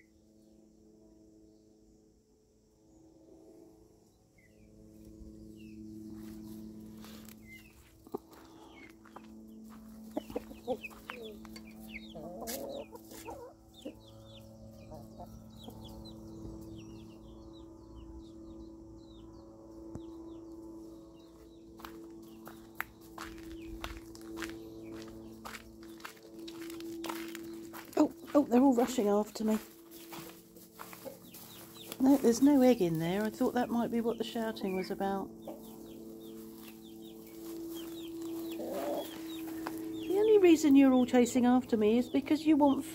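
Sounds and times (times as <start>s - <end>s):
footsteps walking: 6.0s - 13.5s, 20.8s - 41.0s
hens clucking: 9.7s - 15.9s, 23.2s - 40.3s.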